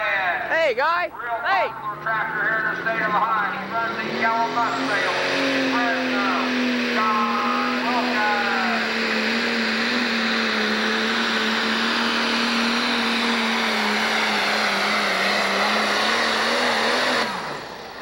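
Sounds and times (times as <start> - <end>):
diesel tractor engine at full throttle: 0.9 - 18.0.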